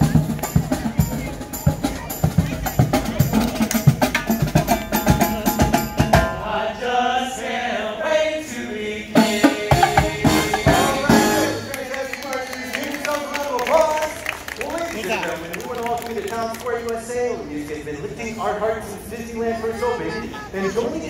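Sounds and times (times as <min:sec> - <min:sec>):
brass marching band: 0:00.0 - 0:06.6, 0:09.0 - 0:13.3
men singing in harmony: 0:04.6 - 0:13.4.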